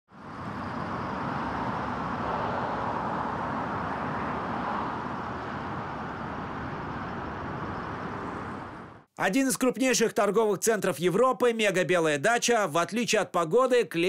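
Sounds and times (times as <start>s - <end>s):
cars driving past: 0.1s - 9.1s.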